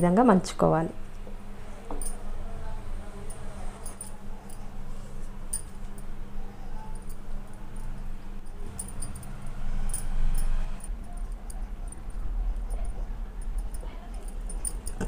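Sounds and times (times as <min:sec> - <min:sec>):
steady low hum: 0:00.0 - 0:15.0
bangles clinking: 0:03.2 - 0:04.8, 0:05.4 - 0:06.2, 0:06.8 - 0:15.0.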